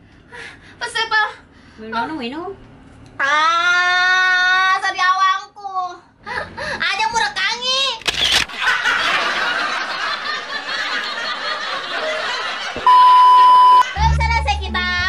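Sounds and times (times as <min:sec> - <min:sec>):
censor bleep: 0:12.8 - 0:13.9
music with bass line: 0:13.8 - 0:15.0.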